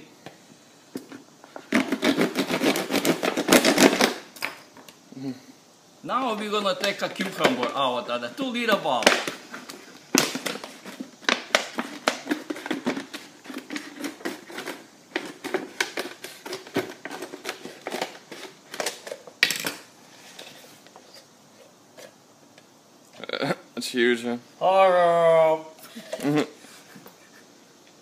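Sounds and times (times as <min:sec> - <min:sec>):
scissors cutting plastic bottle: 0:01.7 - 0:04.2.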